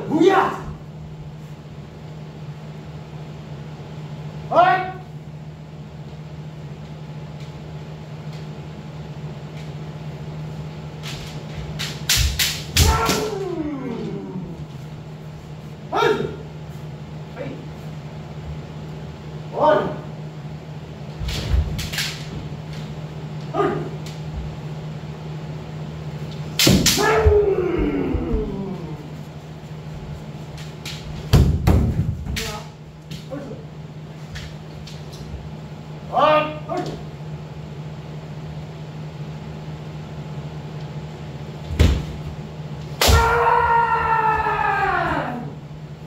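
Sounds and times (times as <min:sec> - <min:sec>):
person shouting: 0:00.0 - 0:00.8, 0:12.8 - 0:14.7, 0:15.9 - 0:16.4, 0:23.5 - 0:24.0, 0:26.9 - 0:29.2, 0:43.0 - 0:45.6
steady low hum: 0:00.0 - 0:46.0
bamboo sword strikes clacking: 0:11.8 - 0:13.5, 0:26.6 - 0:27.3.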